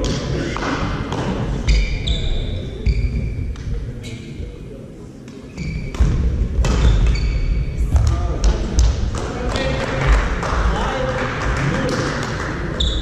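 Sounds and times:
shoes squeaking on floor: 1.6s - 4.4s, 5.4s - 6.1s, 6.8s - 7.9s, 12.8s - 13.0s.

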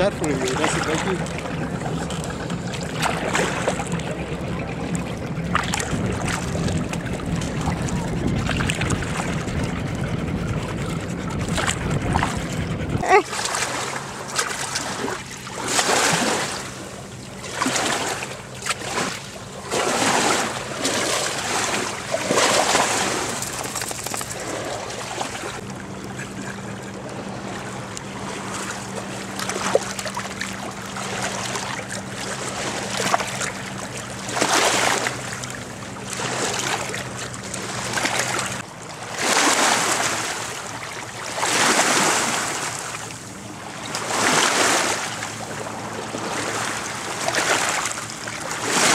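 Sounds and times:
small waves lapping on rocks: 0.0s - 4.0s, 13.0s - 25.6s, 27.4s - 48.9s
low steady hum: 0.0s - 39.2s.

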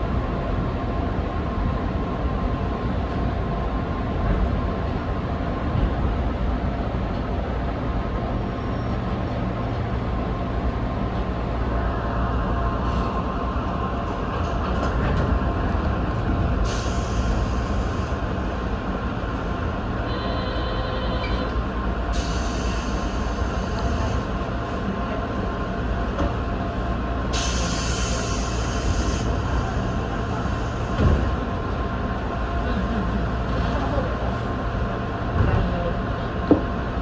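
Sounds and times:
train equipment hum: 0.0s - 37.0s
hiss: 16.6s - 18.1s, 22.2s - 23.9s, 27.4s - 29.3s.

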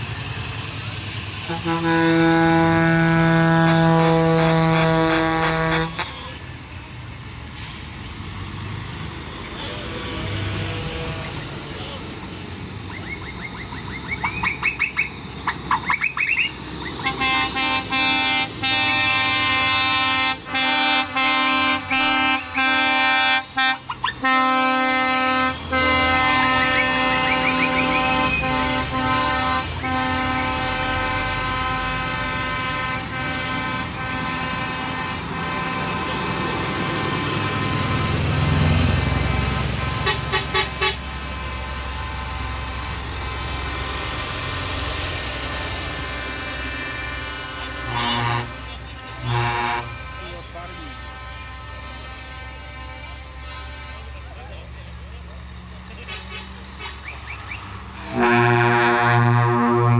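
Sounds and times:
diesel truck engines passing: 0.0s - 59.9s
truck air horns blasting: 1.4s - 6.4s, 9.6s - 11.4s, 14.0s - 43.4s, 45.7s - 54.7s, 58.0s - 59.9s.

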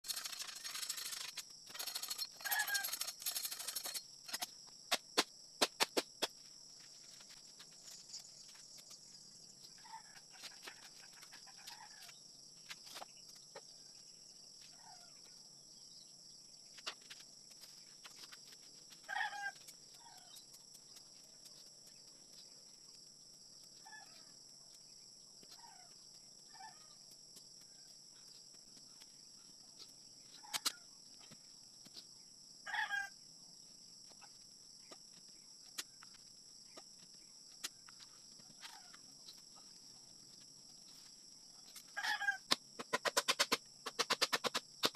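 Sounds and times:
blade chopping bamboo: 42.5s - 44.9s.

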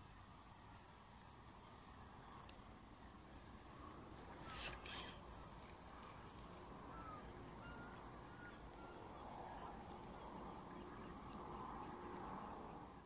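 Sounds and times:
faint bird calls: 3.7s - 13.0s.

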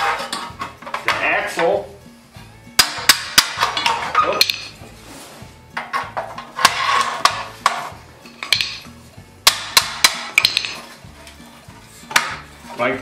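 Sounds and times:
metal clinks and knocks: 0.0s - 1.2s.

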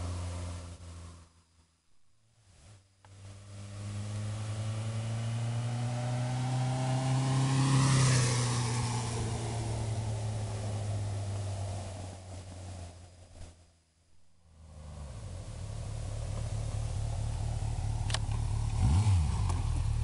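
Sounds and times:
motorcycle riding past: 3.1s - 13.0s, 14.5s - 20.0s.

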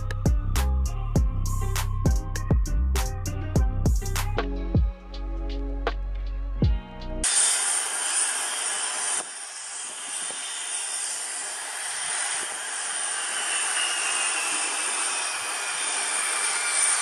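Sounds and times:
jet engines rushing: 7.2s - 17.0s
faint falling whine: 7.4s - 17.0s.

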